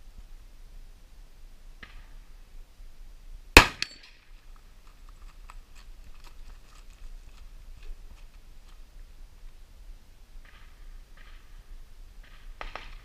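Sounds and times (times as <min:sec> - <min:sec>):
loud gunshot: 0:03.6 - 0:04.0.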